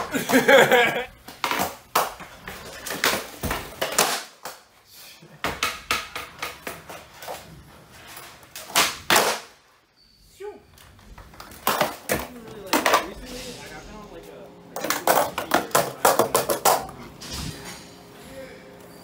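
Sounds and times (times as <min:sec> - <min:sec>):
skateboard knocking on hard floor: 0:14.8 - 0:16.8.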